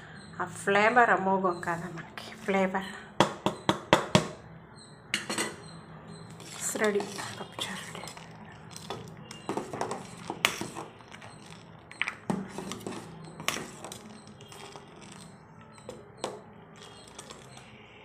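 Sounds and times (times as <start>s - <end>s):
ladle clinking on pot: 5.2s - 5.6s
metal ladle stirring soup in a pot: 5.3s - 17.8s.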